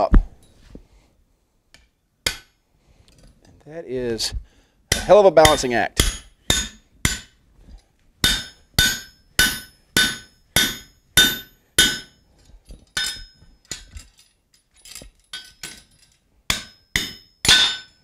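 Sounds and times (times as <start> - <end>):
hammer striking steel: 2.2 - 2.6, 4.9 - 7.4, 8.2 - 12.2, 13.0 - 13.9, 16.5 - 18.0.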